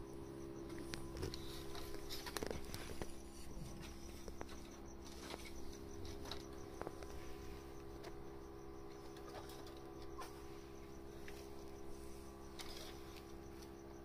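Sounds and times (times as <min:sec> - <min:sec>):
crickets chirping: 0:00.0 - 0:14.0
steady low hum: 0:00.0 - 0:14.0
small clicks and rustles: 0:00.7 - 0:08.2, 0:12.4 - 0:13.8.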